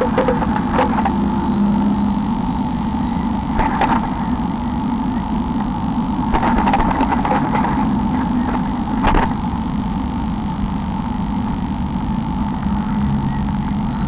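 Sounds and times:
bird rustling in nest: 0.0 - 1.7, 3.3 - 4.4, 5.6 - 9.5
electrical hum and hiss: 0.0 - 14.0.

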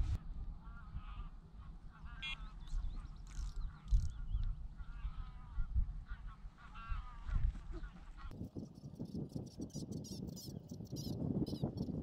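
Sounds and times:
wind rumble on microphone: 0.0 - 12.0
geese honking: 0.6 - 2.6
small birds chirping: 1.9 - 5.4, 7.7 - 12.0.

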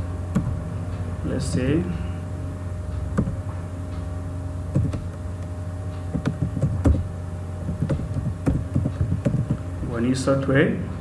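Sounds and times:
low hum: 0.0 - 11.0
keyboard keys clicking: 6.1 - 7.1.

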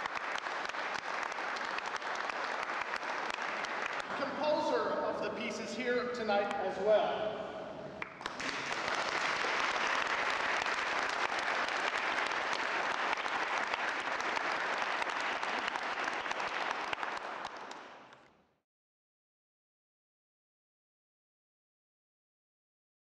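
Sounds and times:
audience applauding: 0.0 - 4.4, 8.0 - 18.3.

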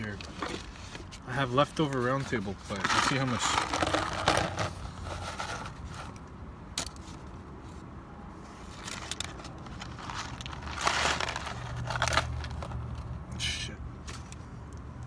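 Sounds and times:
paper rustling: 0.0 - 6.2, 8.8 - 12.8.

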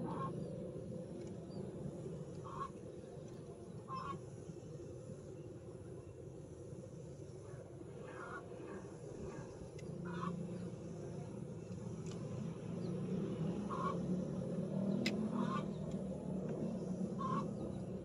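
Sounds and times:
steady low hum: 0.0 - 18.0
short bird calls: 17.2 - 17.6.

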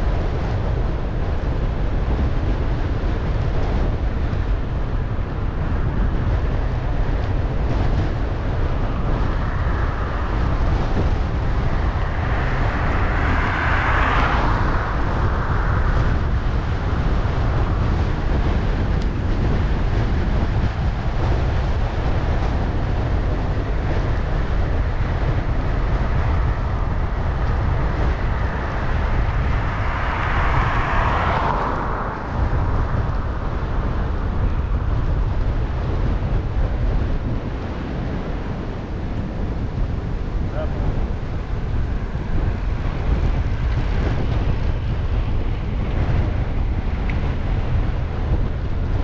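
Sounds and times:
wind rumble on microphone: 0.0 - 49.0.

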